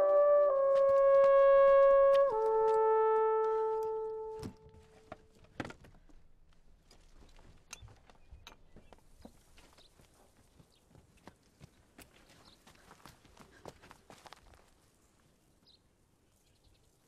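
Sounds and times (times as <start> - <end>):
held brass note: 0.0 - 5.2.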